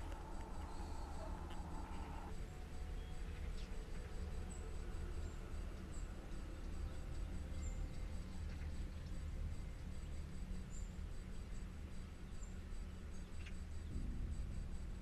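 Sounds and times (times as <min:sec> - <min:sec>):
bird chirps: 0:00.0 - 0:02.3
insects ticking: 0:00.0 - 0:15.0
low steady rumble: 0:00.0 - 0:15.0.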